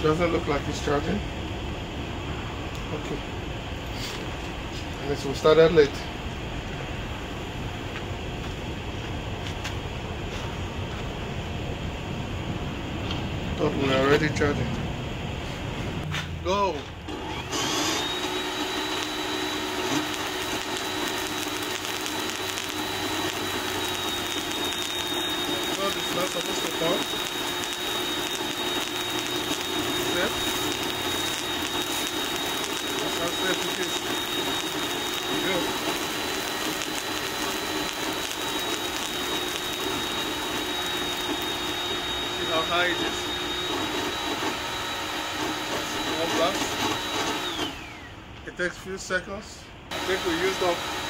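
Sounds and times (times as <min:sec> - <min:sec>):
blower whine: 0:00.0 - 0:51.0
sparks rushing hiss: 0:17.3 - 0:44.6, 0:45.3 - 0:47.8, 0:49.9 - 0:50.8.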